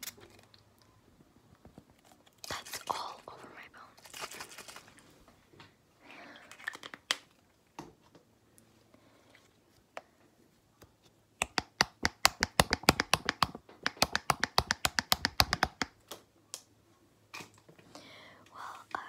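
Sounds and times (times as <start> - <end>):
fingers tapping on small object: 11.4 - 16.0.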